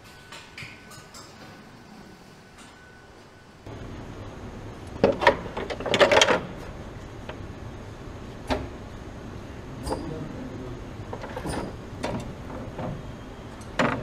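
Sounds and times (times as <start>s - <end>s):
tools clicking and clattering: 0.0s - 1.7s, 5.0s - 6.7s, 11.1s - 14.0s
steady low hum: 0.0s - 14.0s.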